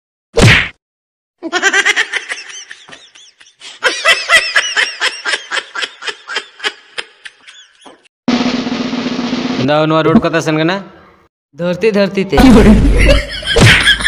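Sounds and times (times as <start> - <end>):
high-pitched laughter: 1.4 - 8.0.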